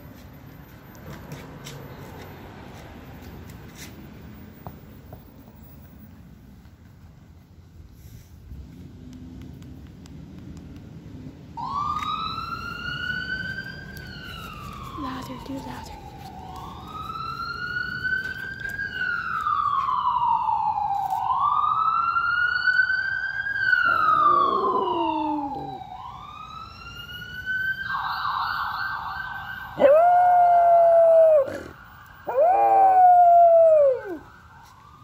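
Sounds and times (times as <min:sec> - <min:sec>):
ambulance siren wailing: 0:11.6 - 0:35.0
dog howling: 0:23.8 - 0:25.8, 0:29.8 - 0:34.2.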